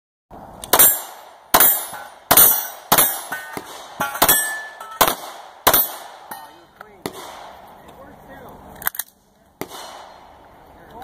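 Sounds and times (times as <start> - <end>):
pistol shots: 0.6 - 7.8, 8.8 - 10.4.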